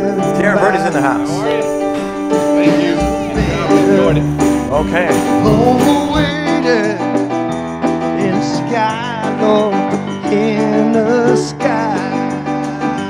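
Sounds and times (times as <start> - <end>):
sustained keyboard chords: 0.0 - 13.0
wavering lead melody: 0.1 - 6.8
low drum beat: 0.8 - 6.8.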